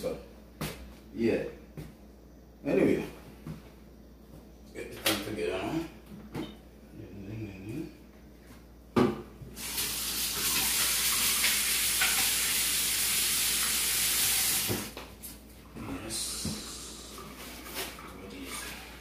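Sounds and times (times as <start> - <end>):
tap water running into sink: 9.6 - 15.0.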